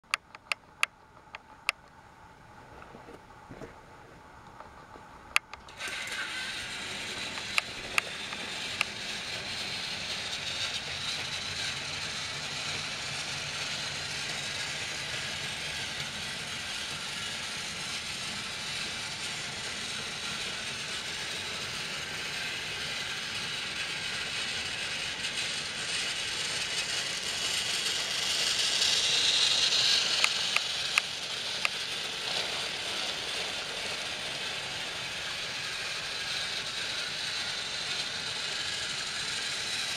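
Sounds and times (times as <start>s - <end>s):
sharp clicks: 0.1s - 2.0s
toy train motors whirring: 5.4s - 39.9s.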